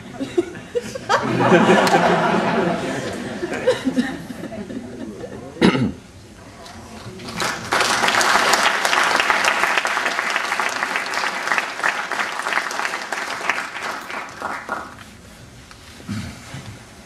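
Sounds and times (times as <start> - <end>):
audience applauding: 6.9 - 15.2.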